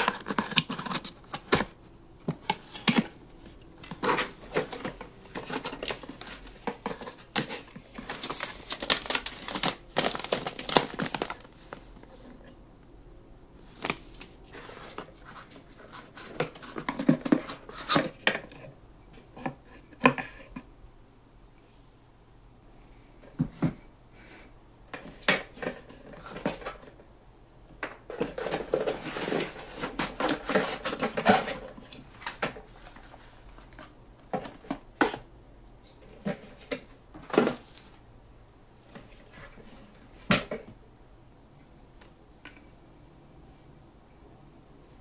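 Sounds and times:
packaging rustling: 0:00.0 - 0:12.4.

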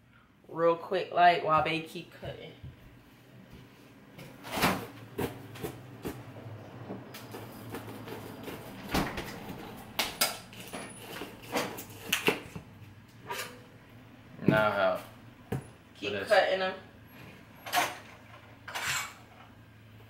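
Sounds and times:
pots and utensils clanking: 0:17.6 - 0:19.5.

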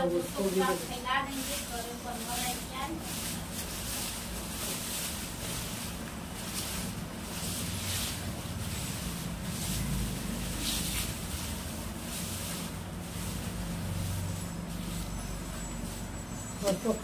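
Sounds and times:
broom sweeping concrete floor: 0:00.0 - 0:17.0.

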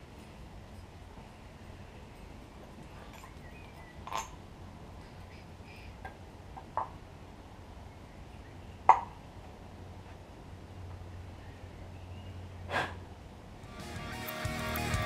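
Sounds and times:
faint bird chirps: 0:02.9 - 0:04.2.

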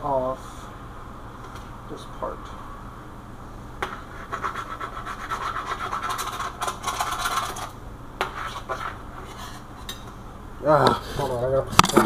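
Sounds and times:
knife sawing: 0:04.2 - 0:07.6.

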